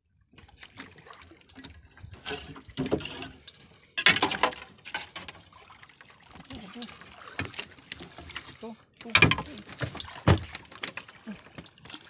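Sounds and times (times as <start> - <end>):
water splashing and dripping: 0.3 - 12.0
knocks and scrapes on boat: 0.4 - 5.5, 6.5 - 12.0.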